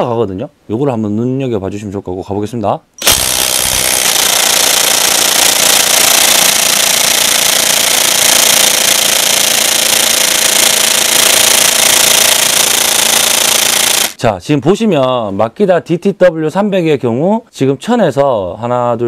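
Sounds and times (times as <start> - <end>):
impact wrench hammering: 3.0 - 14.2.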